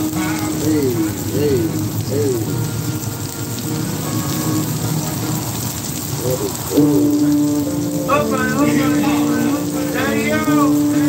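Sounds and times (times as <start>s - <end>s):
person singing: 0.0s - 2.7s, 6.2s - 11.0s
food sizzling on a griddle: 0.0s - 11.0s.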